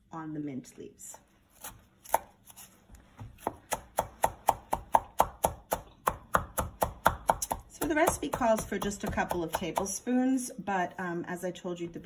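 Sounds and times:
knife chopping on wooden board: 1.6s - 10.0s.

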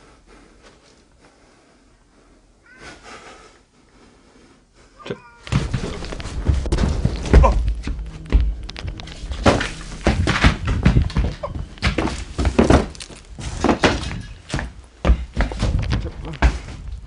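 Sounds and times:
footsteps over junk: 5.4s - 17.0s.

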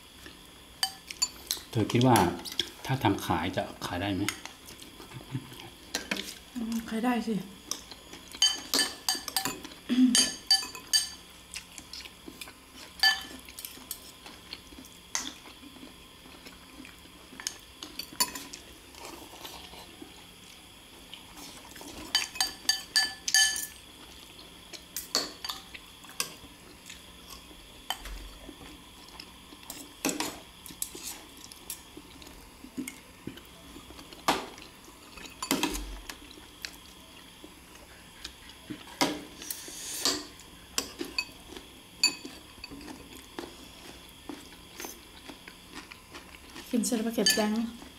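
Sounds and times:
cutlery clinking on ceramic bowls: 8.3s - 11.2s, 13.0s - 13.4s, 18.0s - 18.6s, 22.0s - 23.8s, 35.2s - 35.8s, 42.0s - 43.0s, 47.2s - 47.6s.

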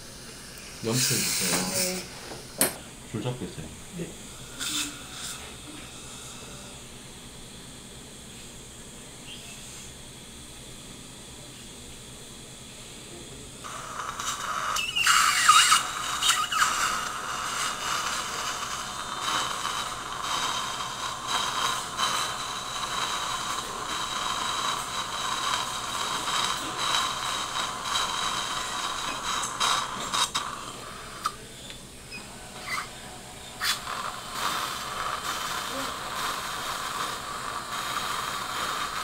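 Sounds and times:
irrigation hiss: 0.0s - 6.8s, 13.6s - 31.5s, 32.5s - 39.0s
dental drill whining: 0.2s - 2.8s, 4.3s - 6.8s, 13.7s - 39.0s.

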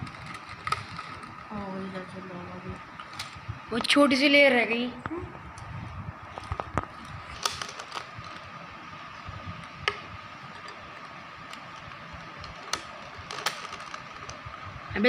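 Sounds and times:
faint steady hum: 0.0s - 15.0s
puzzle cube clicking: 11.5s - 14.4s.

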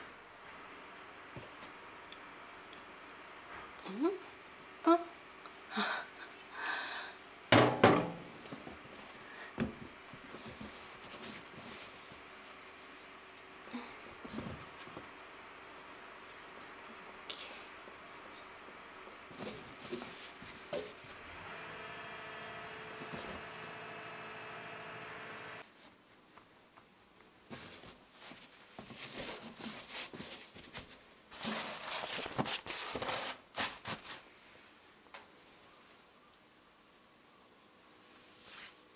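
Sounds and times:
steady hum: 15.0s - 25.6s.

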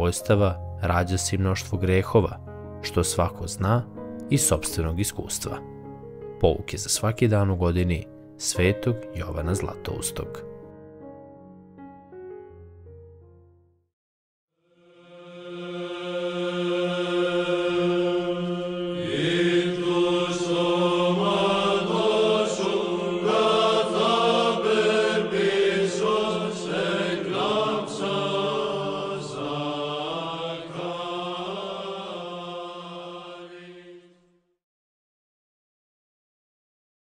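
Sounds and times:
held vocal drone: 14.6s - 34.1s
sung chant melody: 14.6s - 34.4s.

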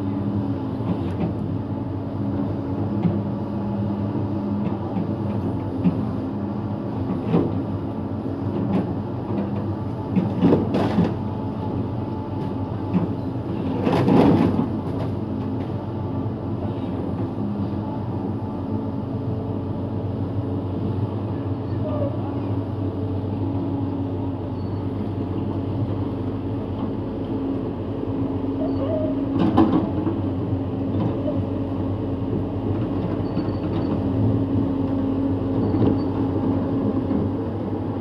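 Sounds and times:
excavator diesel engine running: 0.0s - 38.0s.

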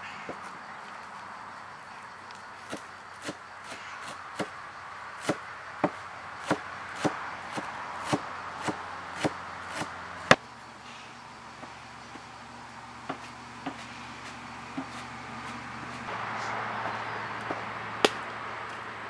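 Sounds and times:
cleaver chopping on wooden board: 5.2s - 10.4s, 13.0s - 16.0s.

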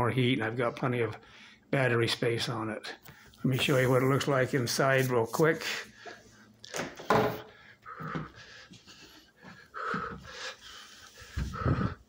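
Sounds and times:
man breathing heavily: 7.4s - 12.0s.

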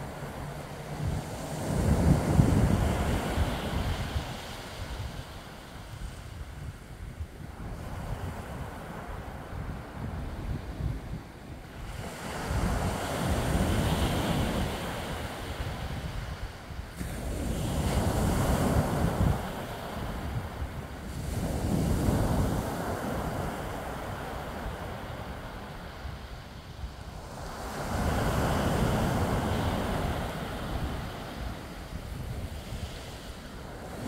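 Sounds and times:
wind rumbling on microphone: 0.0s - 34.0s.

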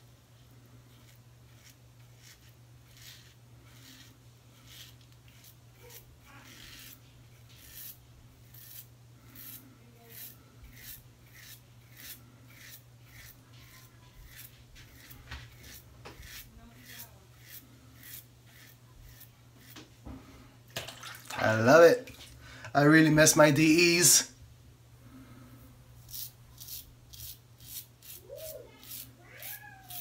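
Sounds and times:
faint steady hum: 0.0s - 29.7s
razor scraping stubble: 0.9s - 20.2s, 26.0s - 30.0s.

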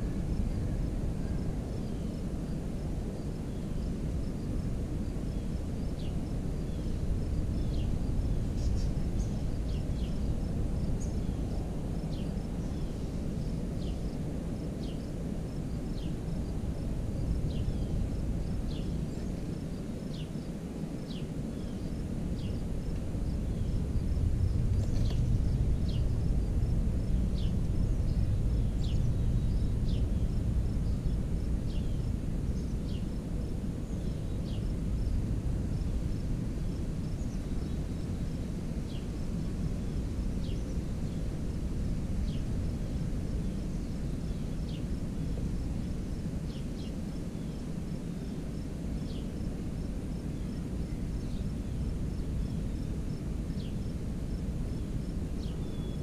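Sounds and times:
faint insect trill: 0.0s - 56.0s
steady low rumble: 21.8s - 46.3s.

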